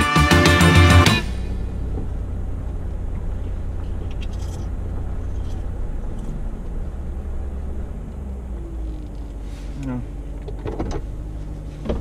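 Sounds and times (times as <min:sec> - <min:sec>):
engine and tyres rumbling: 0:00.0 - 0:12.0
light clicks and rattles: 0:03.1 - 0:06.4.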